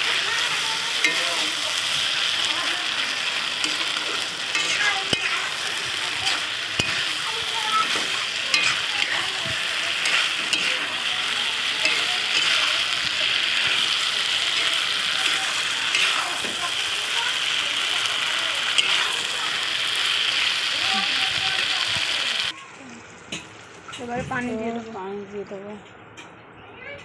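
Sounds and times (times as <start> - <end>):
spatula stirring and scraping: 0.0 - 17.8, 18.6 - 20.6
okra sizzling in a pan: 0.0 - 24.9.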